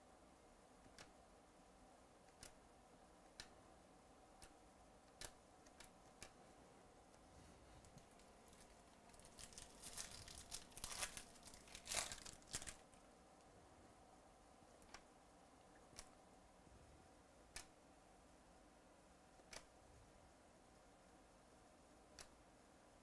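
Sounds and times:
foil wrapper crinkling and tearing: 8.1 - 12.9.

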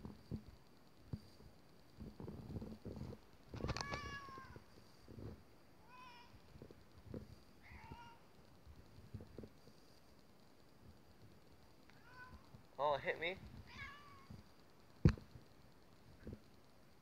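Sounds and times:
cat meowing: 3.6 - 4.6, 5.8 - 6.4, 7.6 - 8.2, 12.0 - 12.4, 13.6 - 14.4.

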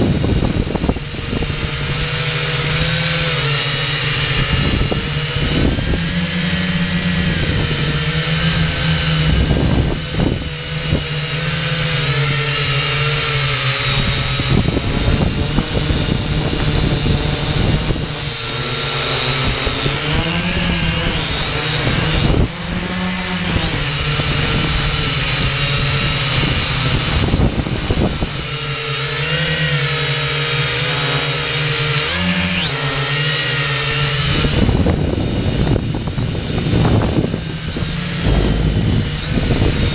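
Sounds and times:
quadcopter motors whining: 0.0 - 39.9.

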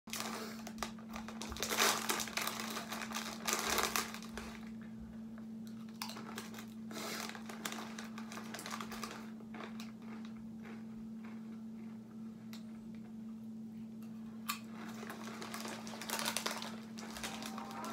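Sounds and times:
foil snack bag crinkling: 0.1 - 4.8, 5.8 - 11.4, 14.6 - 17.9.

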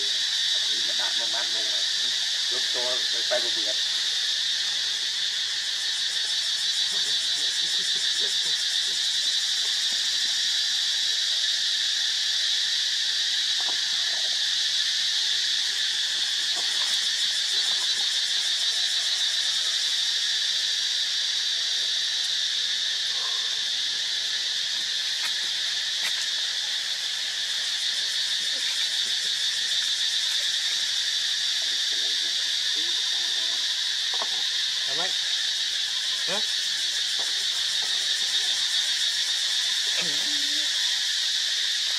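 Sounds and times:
insect chorus buzzing trill: 0.0 - 41.9.

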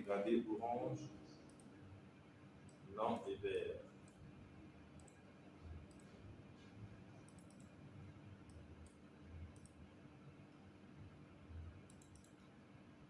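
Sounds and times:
faint room hum: 0.0 - 13.0
computer mouse clicks: 1.5 - 1.7, 5.0 - 6.2, 7.2 - 7.8, 8.4 - 9.8, 11.8 - 12.5.

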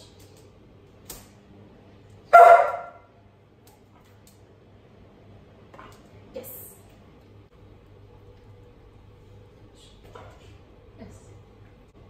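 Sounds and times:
dog barking: 2.3 - 3.1.

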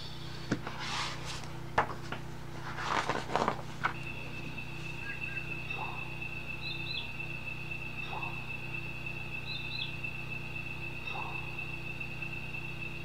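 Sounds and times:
book page turning: 0.6 - 4.1
faint steady high tone: 3.8 - 13.0
faint chirps: 3.9 - 13.0.

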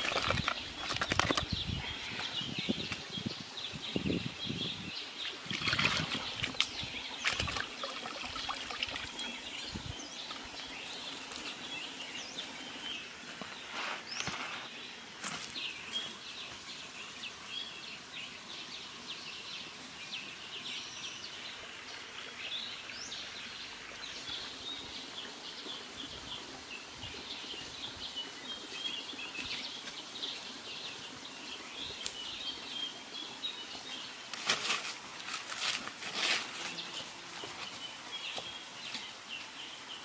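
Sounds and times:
rustling of dry leaves and sticks: 0.0 - 3.2, 5.3 - 16.9, 33.7 - 40.0
birds chirping: 0.0 - 34.3, 35.8 - 40.0.

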